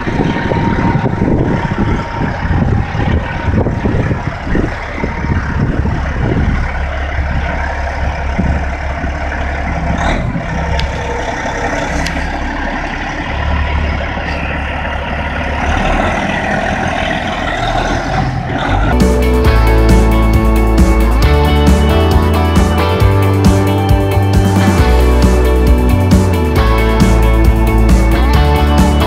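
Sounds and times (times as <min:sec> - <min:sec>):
diesel truck engine drone: 0:00.0 - 0:29.0
music: 0:19.0 - 0:29.0.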